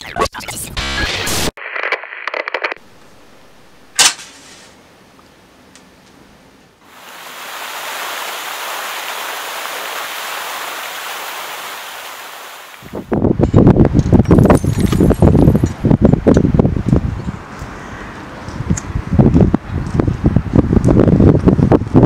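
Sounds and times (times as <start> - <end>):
sharp crack: 3.9 - 4.5
water splashing into puddle: 6.9 - 12.8.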